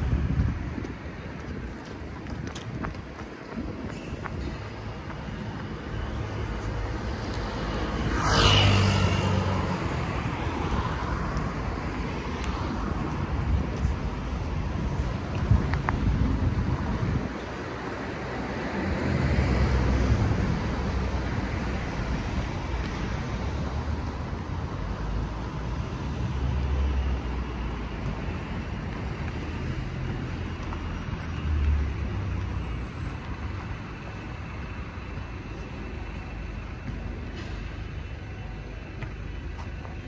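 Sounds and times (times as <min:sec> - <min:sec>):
wind buffeting microphone: 0:00.0 - 0:07.4, 0:09.6 - 0:18.6
vehicles passing: 0:00.0 - 0:40.0.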